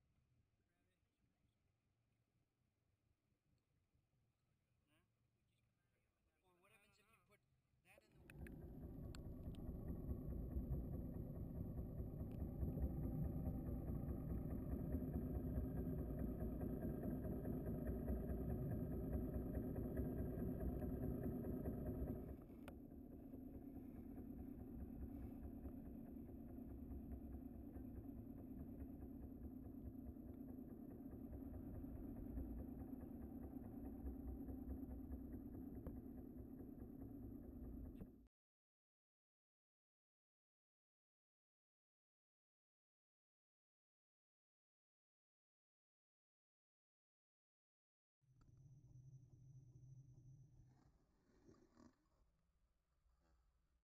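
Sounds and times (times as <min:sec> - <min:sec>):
boat engine humming: 0:08.2 - 0:38.1.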